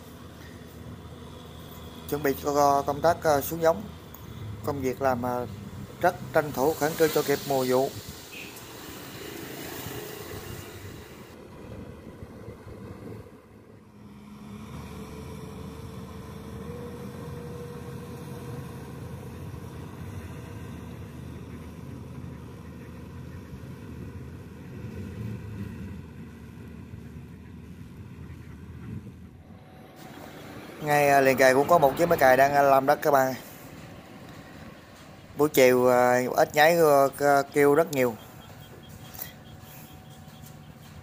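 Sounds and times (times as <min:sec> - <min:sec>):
tractor diesel engine running: 0:11.3 - 0:41.0.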